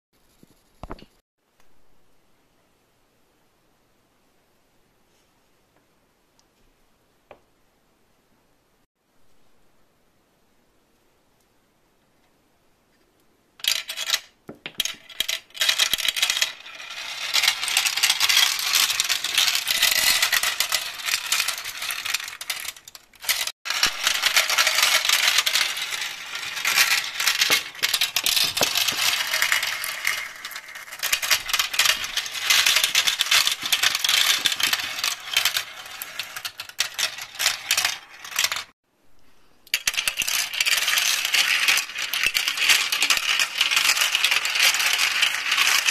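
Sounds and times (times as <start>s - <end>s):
glass marbles rattling through plastic tracks: 13.6s - 38.8s, 39.7s - 45.9s.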